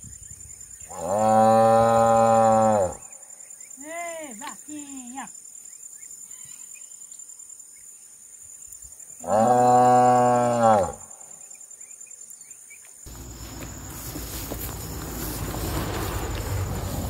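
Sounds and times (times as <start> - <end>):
cow mooing: 1.0 - 3.0, 9.2 - 11.0.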